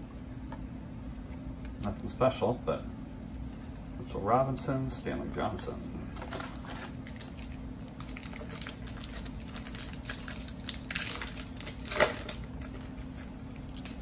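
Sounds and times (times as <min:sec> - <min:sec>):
foil wrapper crinkling and tearing: 0:06.2 - 0:14.0.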